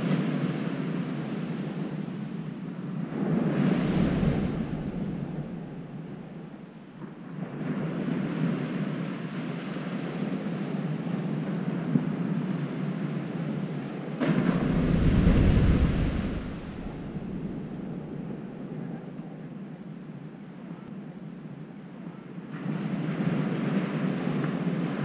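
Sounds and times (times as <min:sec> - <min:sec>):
ocean surf washing ashore: 0:00.0 - 0:18.8, 0:22.5 - 0:25.0
wind buffeting microphone: 0:02.8 - 0:08.7, 0:14.2 - 0:18.8.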